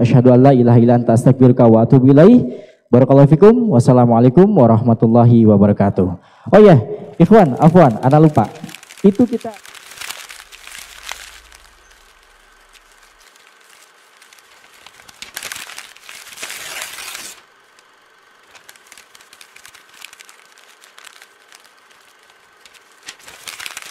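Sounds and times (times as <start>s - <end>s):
paper crumpling and tearing: 7.1s - 23.9s.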